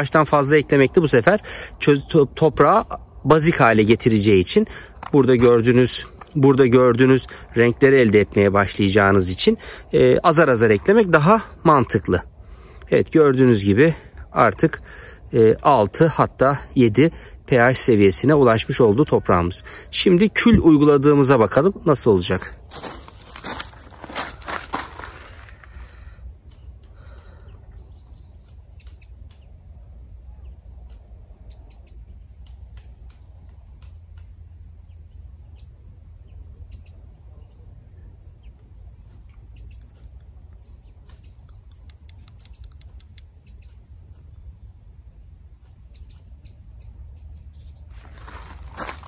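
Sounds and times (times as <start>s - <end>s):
small birds chirping: 0.0s - 49.0s
faint clicks: 41.1s - 44.3s.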